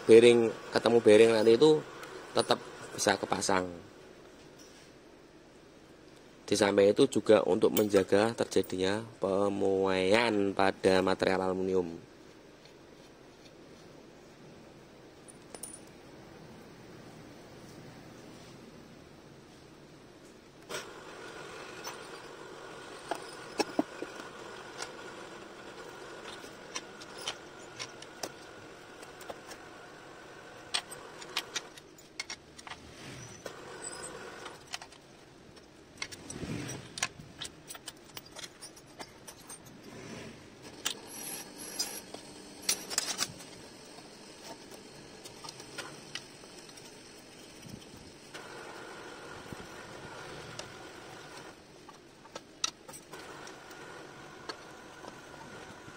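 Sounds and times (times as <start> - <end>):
faint steady hum: 0.0 - 55.9
metal parts clinking: 15.3 - 15.9, 26.2 - 28.5, 30.7 - 39.8, 40.6 - 43.4
metal scrape: 32.7 - 34.6, 36.1 - 37.1, 38.1 - 43.4.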